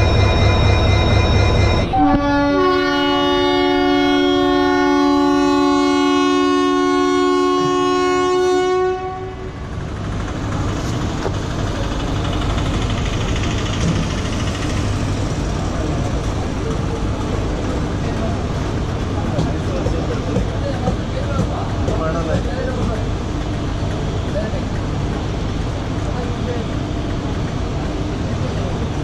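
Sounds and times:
train and station rumble: 0:00.0 - 0:29.0
locomotive horn blast: 0:01.8 - 0:09.6.

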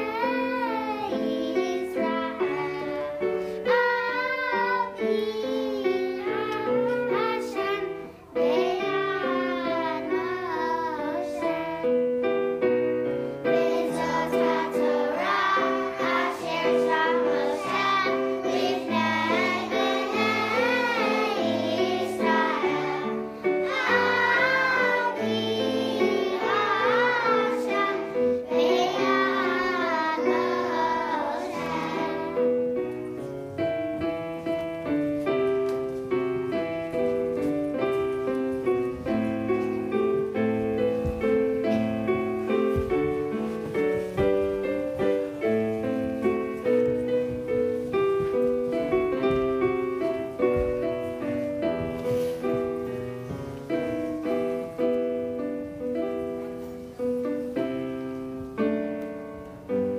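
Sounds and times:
children singing: 0:00.0 - 0:12.1, 0:13.4 - 0:32.8
keyboard accompaniment: 0:00.0 - 0:59.9.

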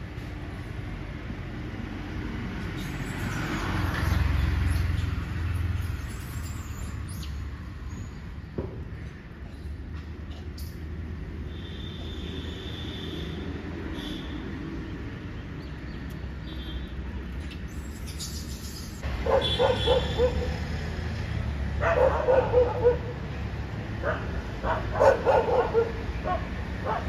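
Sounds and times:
dog barking in rapid yaps: 0:19.2 - 0:20.6, 0:21.8 - 0:23.2, 0:24.0 - 0:27.0.

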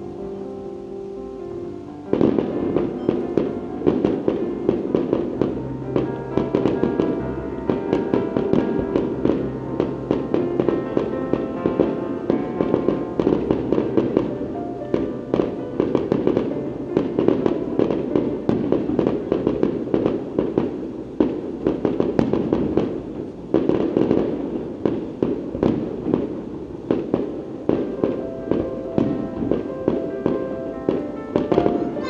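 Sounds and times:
music playing: 0:00.0 - 0:20.9, 0:27.5 - 0:32.0
fireworks bangs and crackles: 0:02.1 - 0:32.0.

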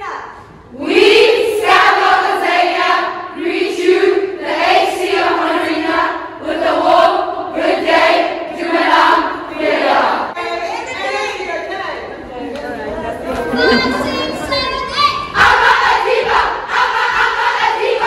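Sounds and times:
women singing in unison: 0:15.4 - 0:18.0.

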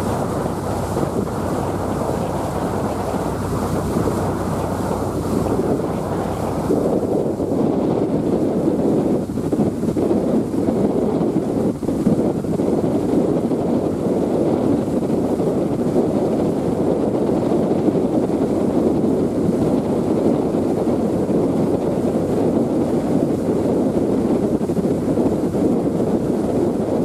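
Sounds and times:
wind rushing over microphone: 0:00.0 - 0:27.0.

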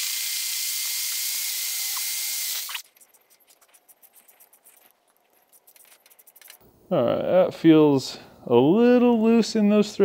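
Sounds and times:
power drill boring into metal: 0:00.0 - 0:02.8.

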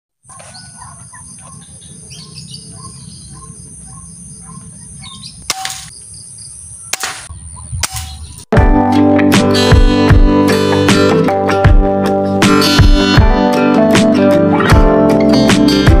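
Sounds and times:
birds calling: 0:00.2 - 0:08.5
sharp cracks: 0:06.9 - 0:08.2.

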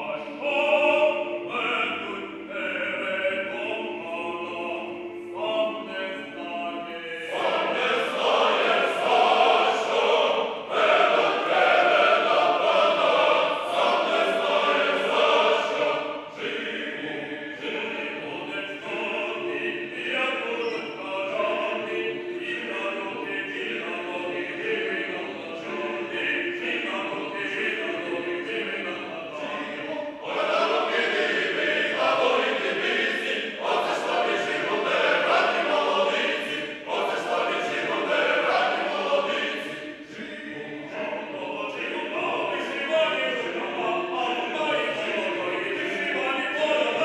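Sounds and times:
mixed choir singing: 0:00.0 - 0:47.0.

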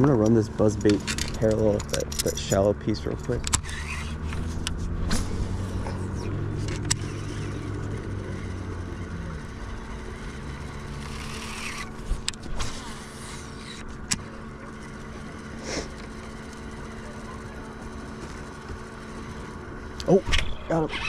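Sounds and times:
electric trolling motor hum: 0:00.0 - 0:21.0
fishing reel clicks: 0:11.0 - 0:12.4.

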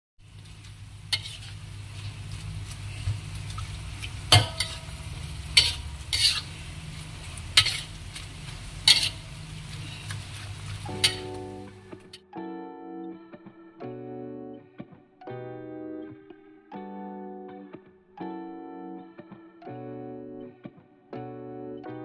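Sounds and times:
light sizzle: 0:00.2 - 0:12.2
metal spatula scraping a wok: 0:01.1 - 0:03.0, 0:04.1 - 0:12.2.

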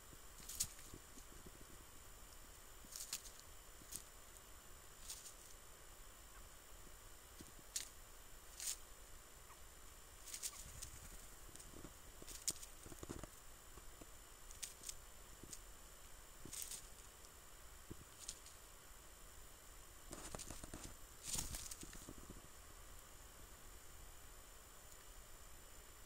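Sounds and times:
birds pecking in dry leaves: 0:00.0 - 0:25.9.

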